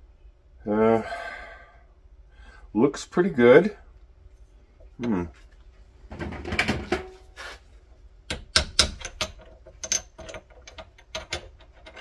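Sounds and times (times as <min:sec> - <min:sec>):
metal clicks and knocks: 0:08.3 - 0:12.0.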